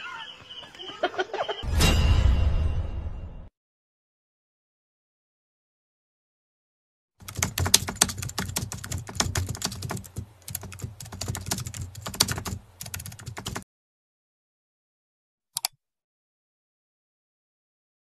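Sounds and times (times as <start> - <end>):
keyboard key clicks: 7.2 - 12.5.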